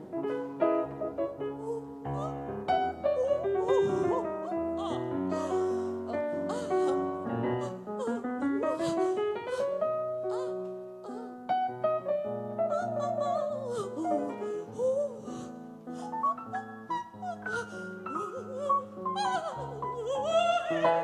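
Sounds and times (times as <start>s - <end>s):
grand piano accompaniment: 0.0s - 21.0s
woman singing with vibrato: 19.2s - 21.0s.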